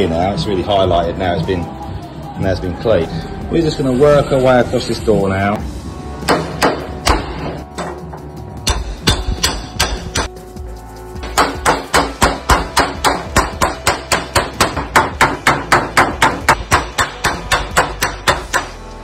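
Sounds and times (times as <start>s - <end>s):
hammer striking metal: 6.2s - 10.4s, 11.2s - 18.8s.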